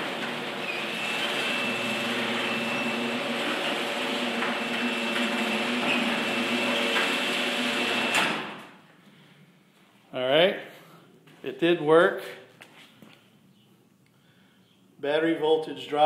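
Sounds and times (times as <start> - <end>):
garage door opener motor and chain: 0.0 - 8.6.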